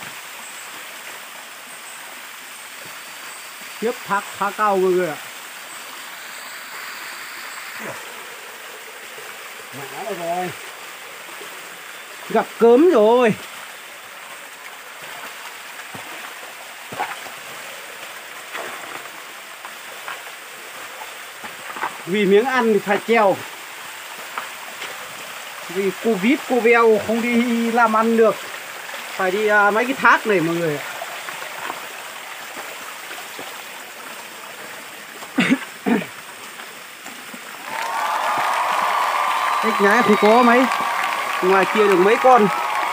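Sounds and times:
stream rushing over rocks: 0:00.0 - 0:42.9
steps splashing in water: 0:15.0 - 0:22.0, 0:31.0 - 0:34.2.

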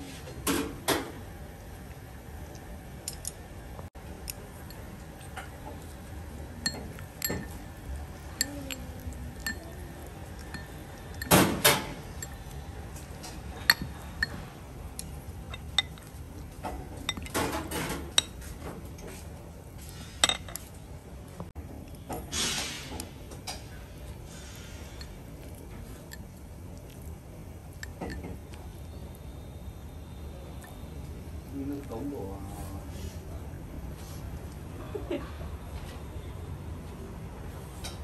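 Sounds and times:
dishes and utensils clinking: 0:06.6 - 0:19.2, 0:19.8 - 0:20.7, 0:27.7 - 0:28.5.

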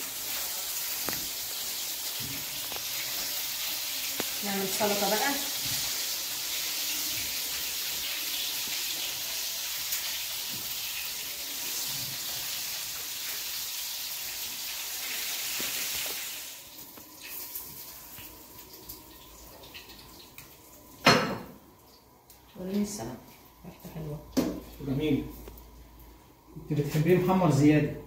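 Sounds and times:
fish sizzling in oil: 0:00.0 - 0:21.2.

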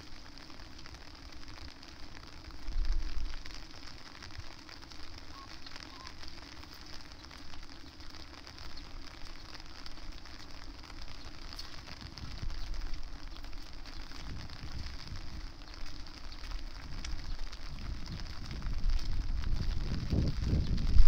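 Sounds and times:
rain drops pattering: 0:00.0 - 0:21.0
wind buffeting microphone: 0:11.4 - 0:21.0.

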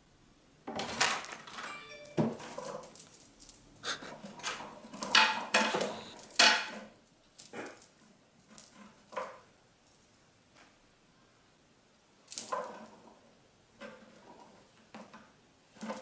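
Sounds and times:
toy rattling: 0:01.7 - 0:03.6.

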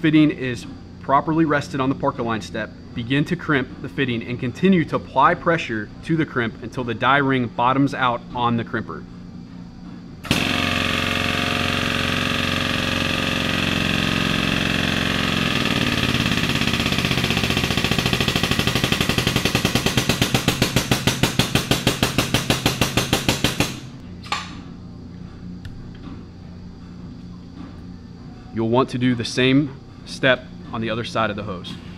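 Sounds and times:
hydraulic pump running: 0:10.2 - 0:24.1.

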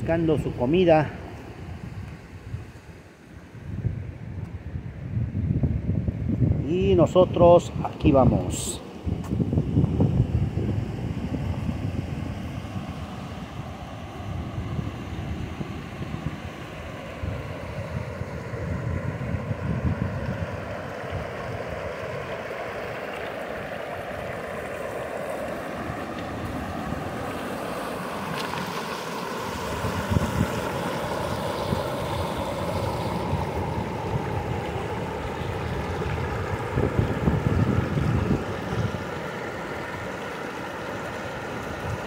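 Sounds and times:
wind buffeting microphone: 0:03.5 - 0:42.0
river water rushing over stones: 0:20.9 - 0:36.6, 0:38.4 - 0:42.0.

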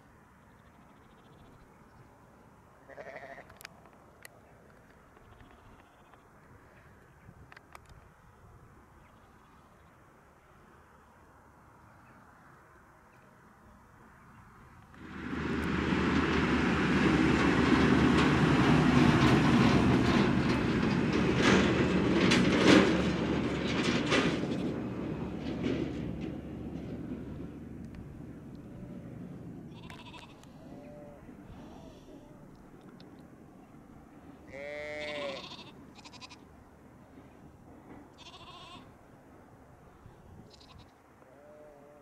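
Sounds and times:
lambs bleating: 0:02.9 - 0:03.5, 0:29.7 - 0:32.4, 0:34.5 - 0:36.4, 0:38.2 - 0:38.9
towed implements rattling: 0:15.0 - 0:28.4
tractor engines running: 0:15.0 - 0:30.2
metal clanks: 0:19.0 - 0:27.1.

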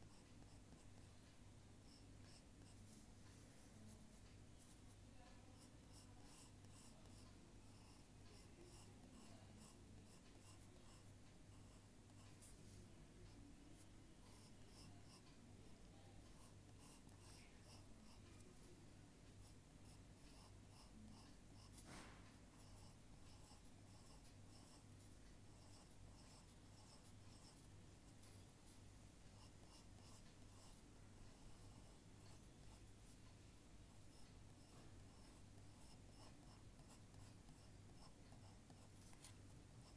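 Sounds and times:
drawing tool scratching paper: 0:03.6 - 0:12.8, 0:16.3 - 0:18.4, 0:19.4 - 0:28.4, 0:29.3 - 0:33.2, 0:34.0 - 0:39.9.

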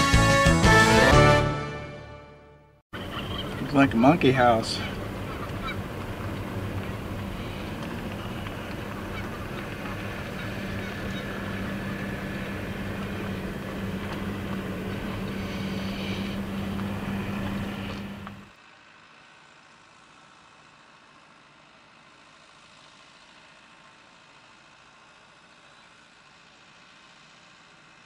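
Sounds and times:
road noise: 0:02.9 - 0:19.4
car engine humming: 0:03.0 - 0:18.6.

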